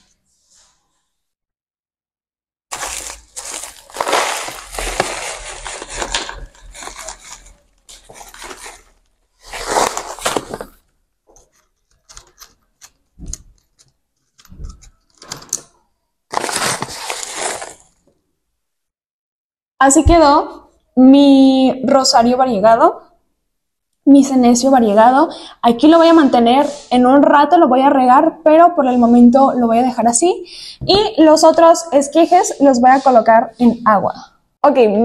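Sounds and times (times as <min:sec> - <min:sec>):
gritty soil pouring: 0:02.7 - 0:08.8, 0:16.3 - 0:17.9
paper pouch crinkling: 0:02.7 - 0:15.7, 0:16.3 - 0:18.1.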